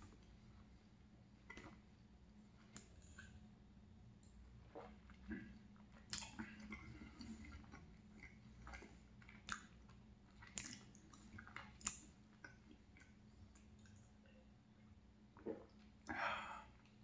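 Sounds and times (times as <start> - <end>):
chewing with mouth closed: 4.7 - 14.1
wet mouth smacks and clicks: 6.0 - 6.4, 8.2 - 14.0.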